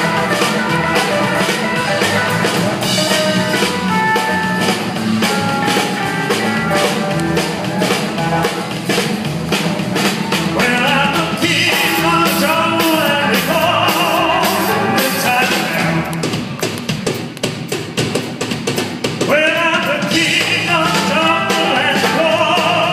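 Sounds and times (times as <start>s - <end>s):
live rock and roll band: 0.0s - 22.9s.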